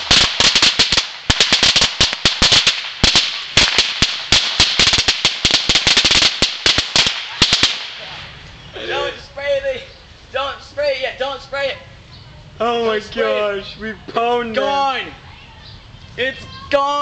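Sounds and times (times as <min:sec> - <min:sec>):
firecrackers banging: 0:00.0 - 0:08.6.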